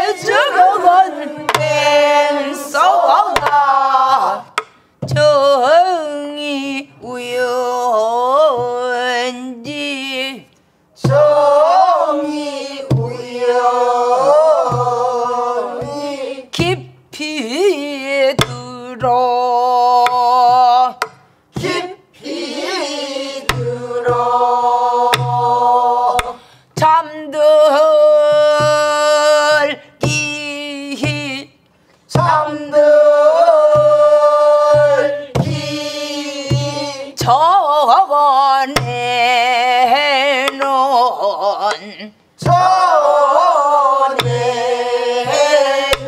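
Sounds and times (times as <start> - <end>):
woman singing with vibrato: 0.0 - 46.0
stick clicking on wooden shell: 4.6 - 4.8.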